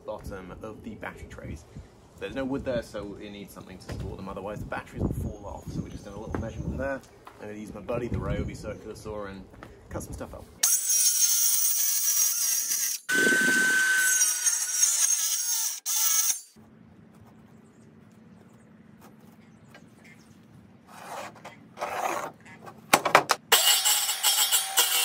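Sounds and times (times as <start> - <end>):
circular saw cutting wood: 10.6 - 16.6, 20.9 - 22.4, 23.4 - 25.0.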